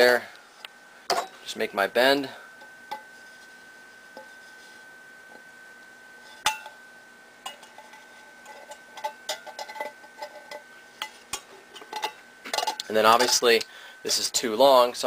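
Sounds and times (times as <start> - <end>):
faint high-pitched tone: 12.9 - 15.0.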